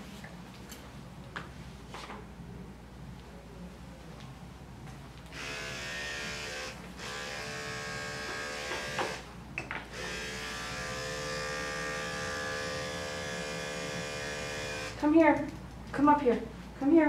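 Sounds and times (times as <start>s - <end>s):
electric clippers buzzing: 5.3s - 9.3s, 9.9s - 15.0s.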